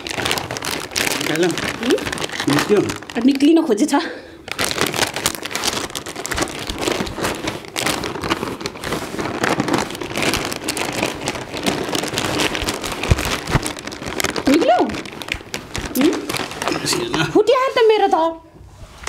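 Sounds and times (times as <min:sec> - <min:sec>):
plastic snack packets crinkling: 0:00.0 - 0:17.8.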